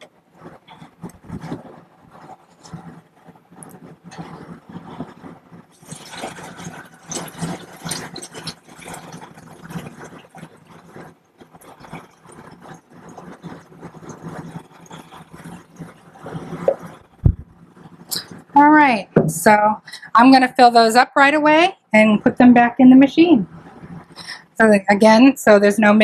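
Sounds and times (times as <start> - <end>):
liquid pouring and gurgling: 0.5 - 18.5.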